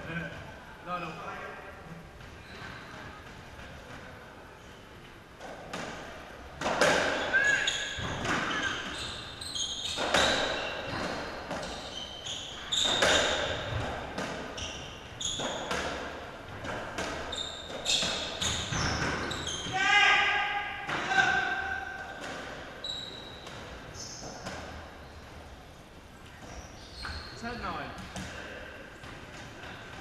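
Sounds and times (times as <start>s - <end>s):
shoes squeaking on court floor: 2.2s - 4.0s, 6.7s - 19.8s, 22.0s - 30.0s.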